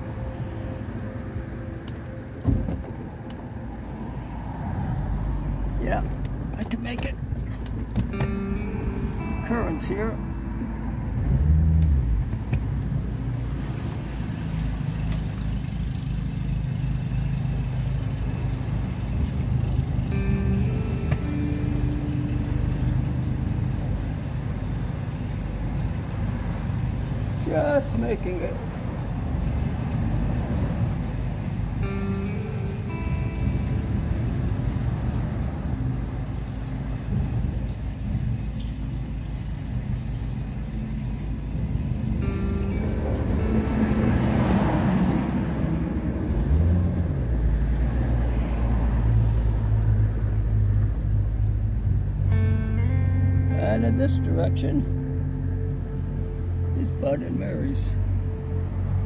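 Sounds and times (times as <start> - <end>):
wind: 0.0 - 59.0
water noise: 7.5 - 51.9
outboard motor running: 11.1 - 44.6.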